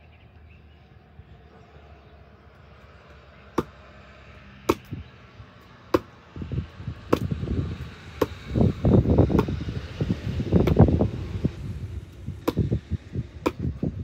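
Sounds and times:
knife striking wood: 3.6 - 3.8, 4.7 - 5.0, 5.9 - 6.1, 7.1 - 7.4, 8.2 - 8.4, 9.3 - 9.6, 12.4 - 12.7, 13.4 - 13.8.

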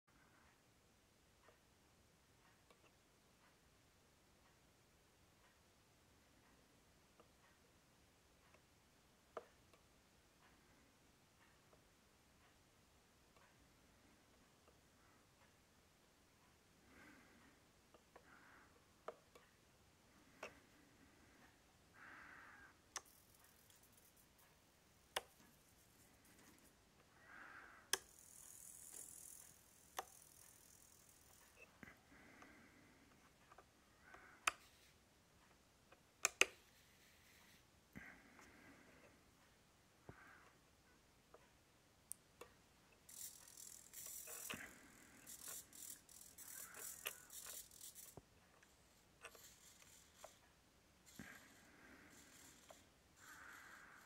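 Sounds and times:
small servo whirring: 27.6 - 31.8, 43.0 - 54.0
sharp clicks: 35.5 - 36.6, 42.0 - 50.4.

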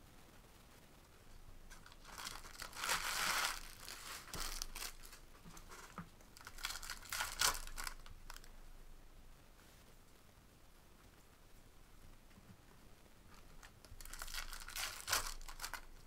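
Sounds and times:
foil wrappers crinkling and tearing: 1.7 - 8.5, 13.6 - 16.0.

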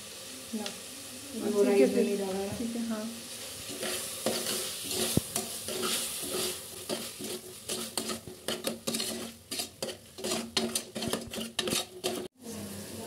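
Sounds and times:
food frying in oil: 0.0 - 13.0
spoon scraping a pan: 3.6 - 12.4.

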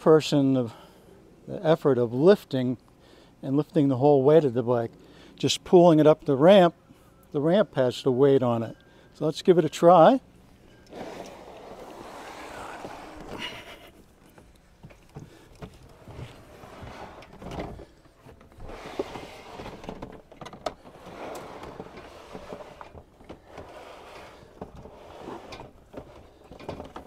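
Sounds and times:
plastic tote scraping on ramp: 10.9 - 13.7, 15.9 - 27.0.

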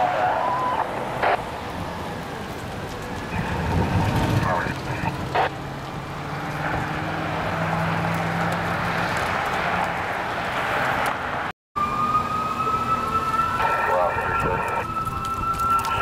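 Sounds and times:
siren rising in pitch: 0.0 - 1.4, 11.8 - 16.0
diesel engine drone: 0.0 - 16.0
road noise: 0.0 - 16.0.

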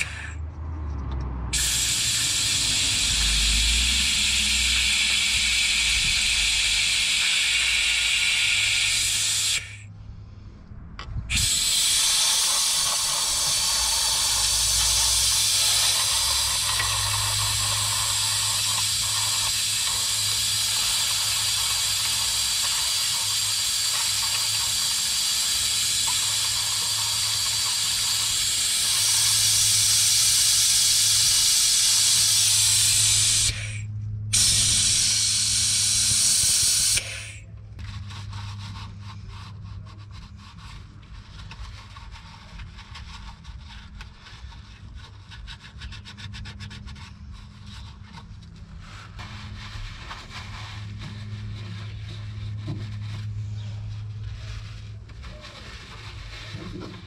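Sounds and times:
low hum: 0.1 - 11.6, 32.6 - 36.3
loud steady hissing: 1.6 - 9.9, 11.3 - 37.5.

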